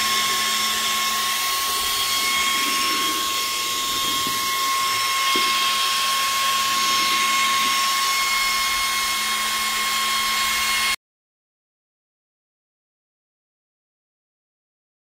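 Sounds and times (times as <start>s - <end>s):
small fan whining: 0.0s - 11.0s.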